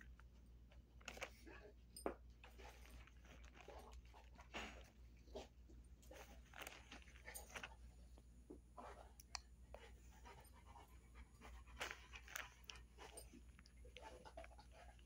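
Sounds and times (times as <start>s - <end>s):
large dog panting: 9.8s - 15.0s.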